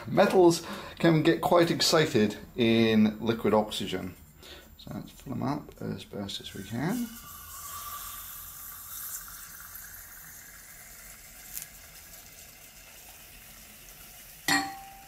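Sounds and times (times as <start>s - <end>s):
liquid oxygen boiling with hiss: 6.4s - 14.5s
short ringing tone: 14.5s - 15.0s.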